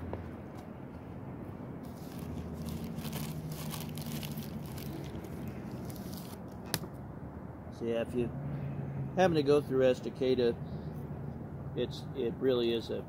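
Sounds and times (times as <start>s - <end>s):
paper wrappers rustling: 1.8s - 6.5s.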